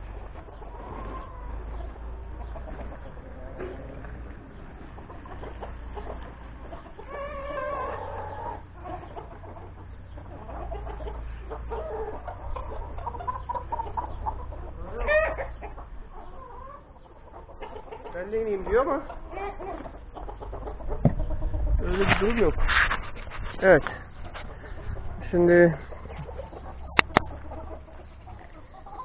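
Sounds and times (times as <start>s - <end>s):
chickens clucking: 0.0s - 29.0s
chicken call: 5.3s - 18.1s.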